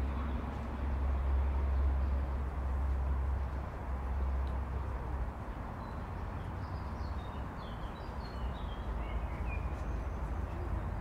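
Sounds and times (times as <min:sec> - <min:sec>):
distant city traffic rumble: 0:00.0 - 0:11.0
small birds chirping: 0:05.8 - 0:11.0.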